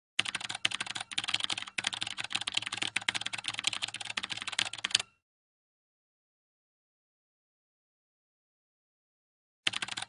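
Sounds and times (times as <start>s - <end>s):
keyboard keystroke clicks: 0.2s - 5.2s, 9.7s - 10.0s.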